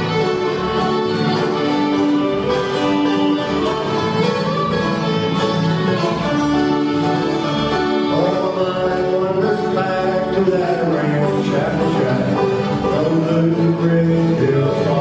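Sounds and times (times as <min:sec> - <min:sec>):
bluegrass band playing: 0:00.0 - 0:15.0.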